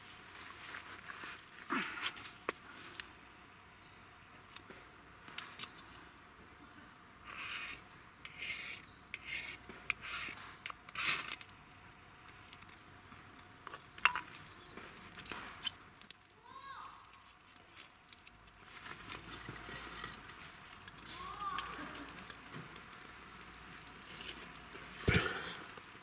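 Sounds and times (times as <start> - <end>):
knife scraping bark: 7.2 - 11.5.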